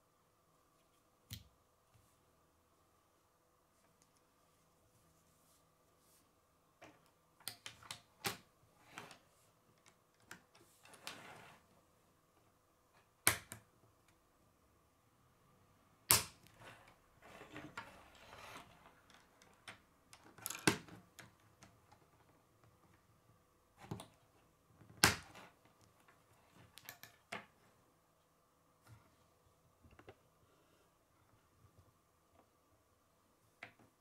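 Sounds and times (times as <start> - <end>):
plastic pieces snapping together: 16.1 - 16.5.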